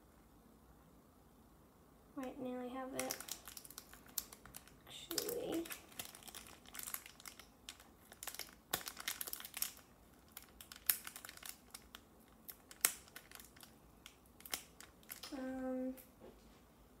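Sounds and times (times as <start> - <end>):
foil wrapper crinkling: 3.0 - 15.3.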